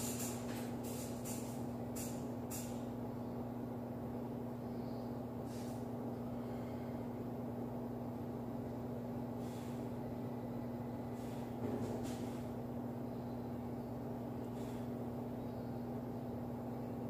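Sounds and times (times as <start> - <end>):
short hissing bursts: 0.0 - 2.8
low machine hum: 0.0 - 17.0.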